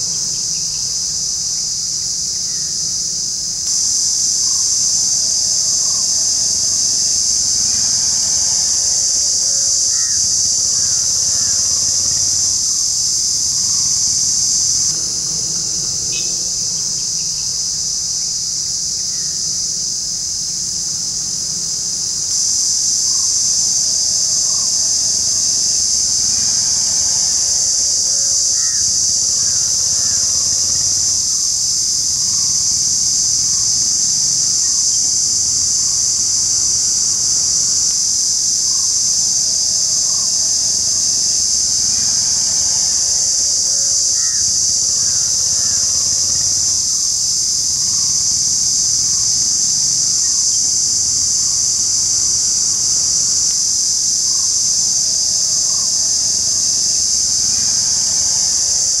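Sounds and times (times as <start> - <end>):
cicada shrill buzz: 0.0 - 59.0.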